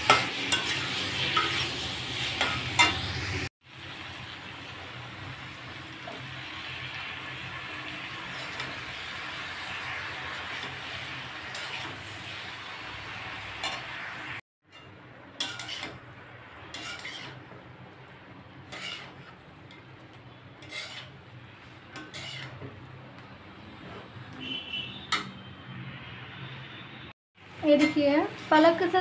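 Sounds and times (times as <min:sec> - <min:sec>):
metal spatula scraping a pan: 0:00.0 - 0:03.3, 0:07.4 - 0:17.7, 0:18.5 - 0:23.0, 0:23.6 - 0:25.4, 0:27.6 - 0:28.3
vegetables sizzling in a pan: 0:00.0 - 0:23.0, 0:27.4 - 0:29.0.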